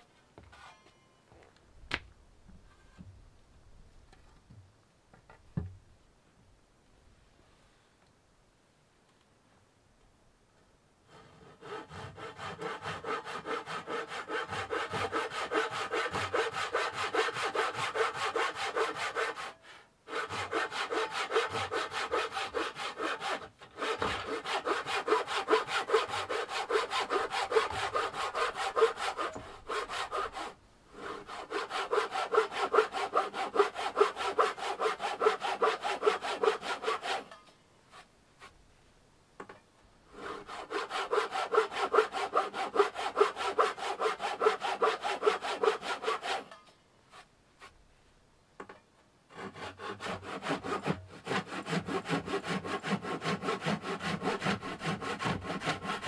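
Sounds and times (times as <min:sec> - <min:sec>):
handsaw cutting wood: 0:11.1 - 0:37.4, 0:40.1 - 0:46.6, 0:49.3 - 0:56.0.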